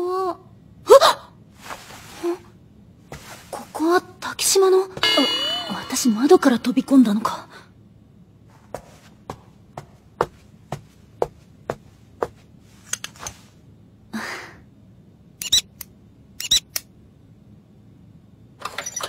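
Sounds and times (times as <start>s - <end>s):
soft rustles: 1.5s - 4.0s.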